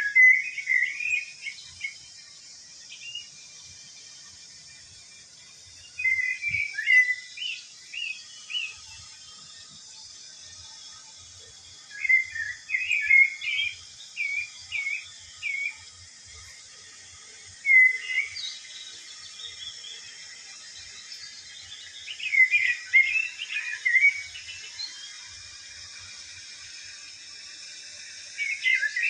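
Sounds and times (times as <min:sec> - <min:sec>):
bird chirping: 0:00.0 - 0:02.2, 0:02.8 - 0:03.3, 0:05.7 - 0:09.0, 0:11.8 - 0:16.4, 0:17.5 - 0:26.1, 0:28.3 - 0:29.0
steady hiss: 0:00.0 - 0:29.0.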